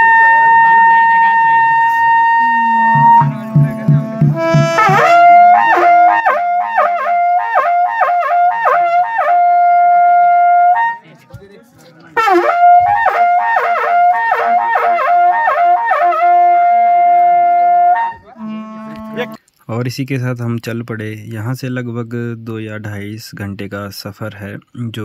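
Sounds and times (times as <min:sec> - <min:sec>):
reed wind instrument melody: 0:00.0 - 0:11.1, 0:12.2 - 0:19.4.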